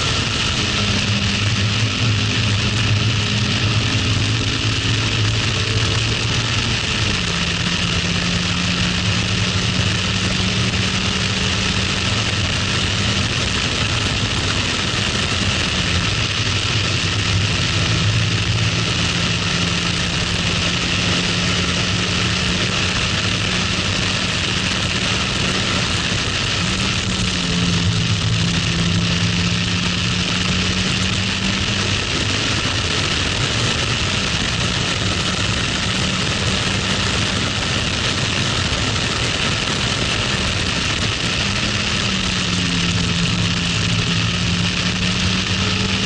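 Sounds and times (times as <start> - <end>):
car engine under load: 0.0 - 46.0
wind and road noise: 0.0 - 46.0.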